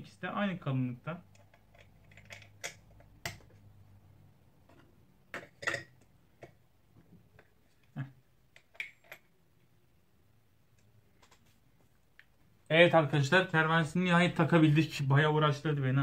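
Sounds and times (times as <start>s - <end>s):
small metal parts clicking: 1.3s - 3.2s.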